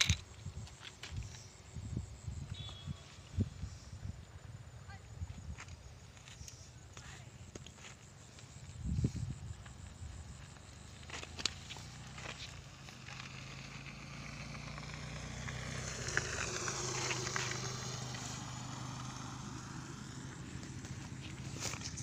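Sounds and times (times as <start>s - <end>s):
low engine hum: 8.8s - 22.0s
vehicle passing on road: 9.0s - 22.0s.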